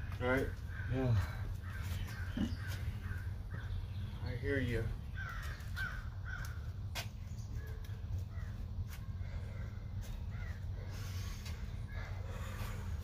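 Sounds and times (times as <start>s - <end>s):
bird calling: 0.0s - 6.7s
steady low rumble: 0.0s - 13.0s.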